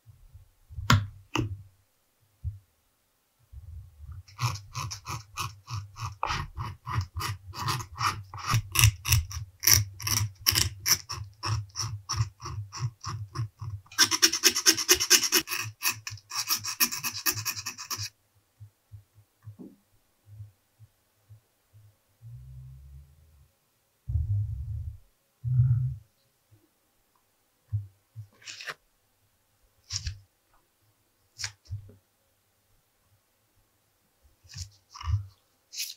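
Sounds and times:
knife blade scratching leather: 0:04.3 - 0:18.1.

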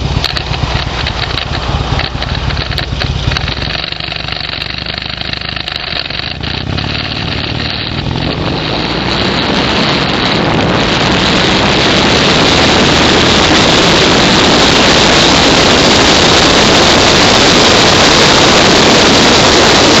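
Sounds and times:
vehicle engine accelerating: 0:00.0 - 0:20.0
wind rushing on microphone: 0:06.2 - 0:20.0.

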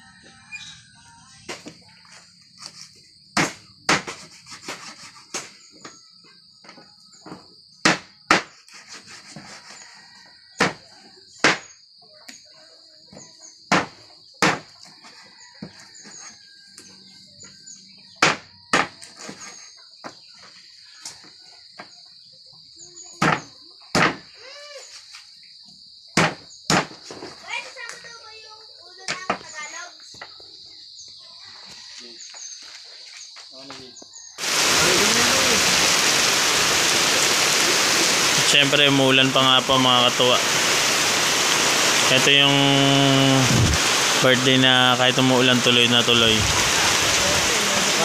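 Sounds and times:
high insect buzz: 0:34.4 - 0:38.4, 0:39.0 - 0:48.0.

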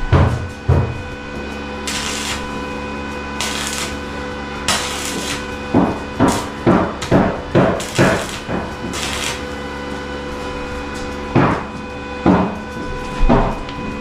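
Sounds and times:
hammer blows: 0:00.0 - 0:14.0.

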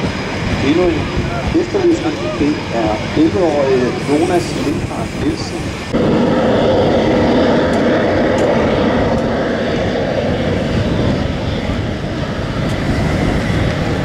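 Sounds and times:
aircraft engine noise: 0:00.0 - 0:14.0.

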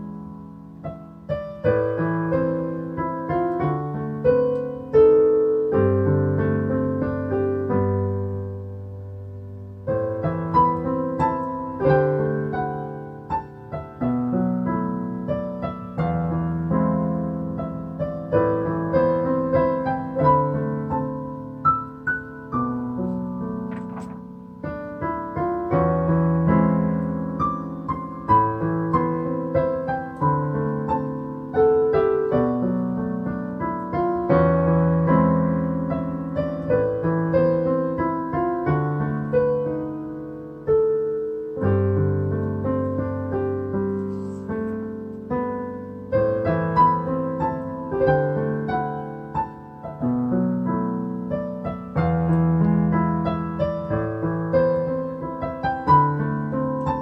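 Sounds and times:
solo piano music: 0:00.0 - 0:57.0.

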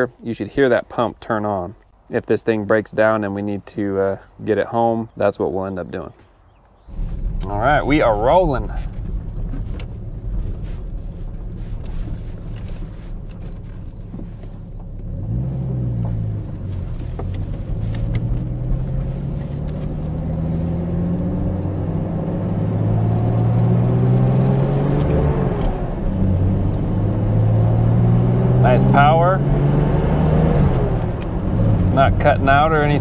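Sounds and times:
car engine accelerating: 0:06.8 - 0:33.0.

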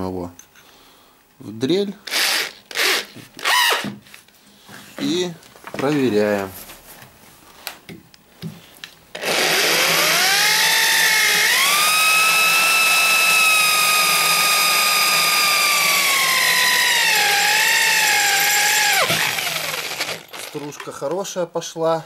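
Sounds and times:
electric drill boring into metal: 0:02.1 - 0:03.9, 0:09.2 - 0:20.9.

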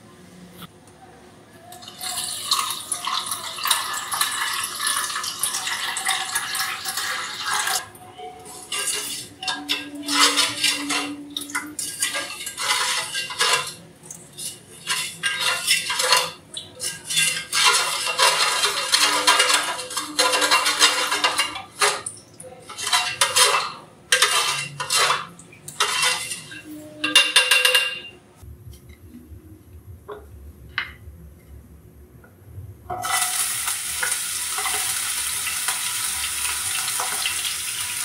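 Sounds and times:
spoon stirring in metal bowl: 0:01.7 - 0:28.9, 0:32.9 - 0:37.9
water pouring into metal bowl: 0:01.8 - 0:07.8.

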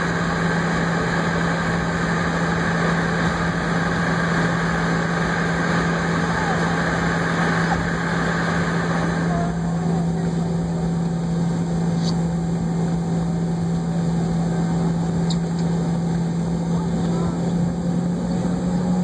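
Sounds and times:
jet engine drone: 0:00.0 - 0:19.0
low hum: 0:00.0 - 0:19.0.

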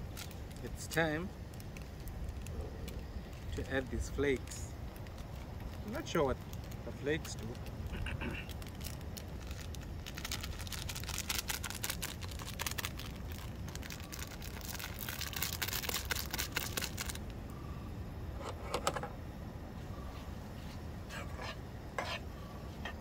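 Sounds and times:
plastic sachet crinkling and tearing: 0:00.0 - 0:17.3.

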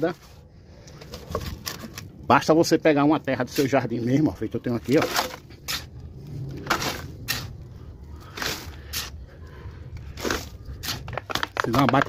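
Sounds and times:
soil scraping swishes: 0:04.7 - 0:09.5.

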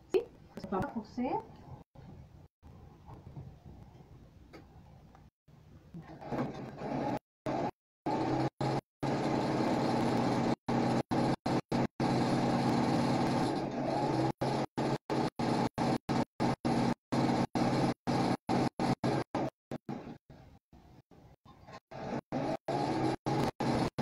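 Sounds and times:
electric sewing machine running: 0:06.2 - 0:20.2, 0:21.9 - 0:24.0.

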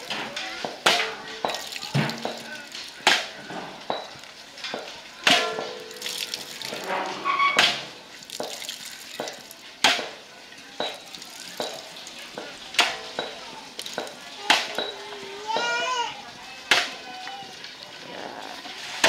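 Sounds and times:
liquid dripping into metal basin: 0:00.9 - 0:15.0
sharp splashes: 0:05.2 - 0:10.2.

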